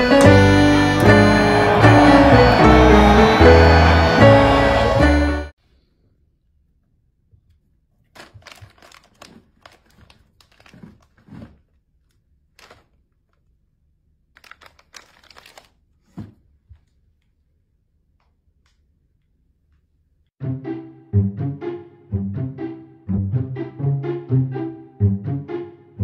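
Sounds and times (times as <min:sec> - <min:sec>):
music: 0:00.0 - 0:05.5, 0:20.4 - 0:26.0
rustling and crinkling: 0:07.9 - 0:13.6.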